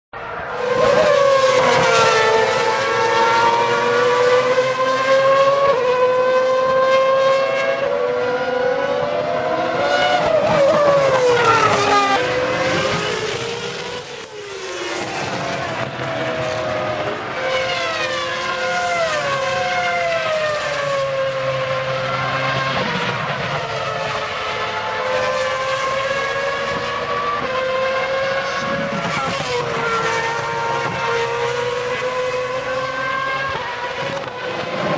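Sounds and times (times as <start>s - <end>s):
racing car engines revving: 0.2s - 34.9s.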